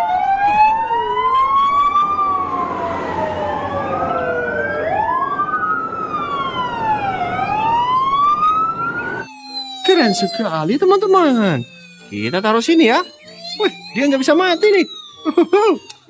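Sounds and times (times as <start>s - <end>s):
fire truck sirens wailing: 0.0s - 16.0s
truck engine noise: 0.8s - 9.2s.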